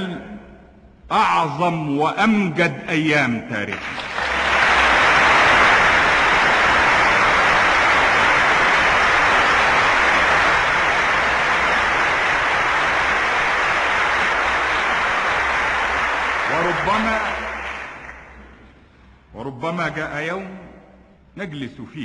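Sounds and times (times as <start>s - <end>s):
speech: 1.1s - 3.8s, 16.5s - 17.5s, 19.3s - 20.8s, 21.4s - 22.0s
crowd applauding: 3.7s - 18.6s.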